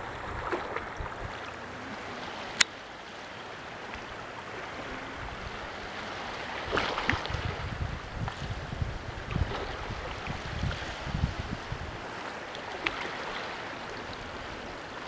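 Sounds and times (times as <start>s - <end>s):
wind buffeting microphone: 0.0s - 1.6s, 4.8s - 12.3s
steady outdoor hiss: 0.0s - 15.0s.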